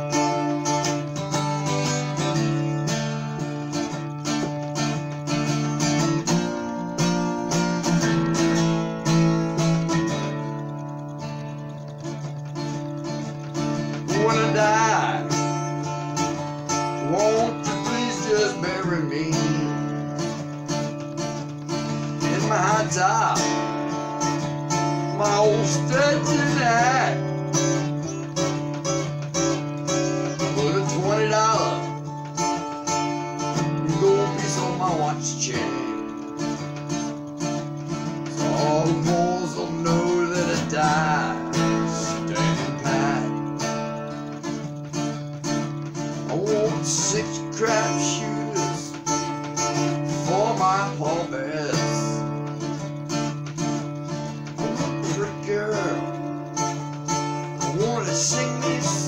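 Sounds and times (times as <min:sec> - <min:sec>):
acoustic guitar strumming: 0:00.0 - 0:59.0
man singing: 0:13.5 - 0:21.0, 0:21.9 - 0:28.2, 0:29.8 - 0:36.7, 0:37.9 - 0:44.3, 0:46.0 - 0:52.9, 0:54.4 - 0:59.0.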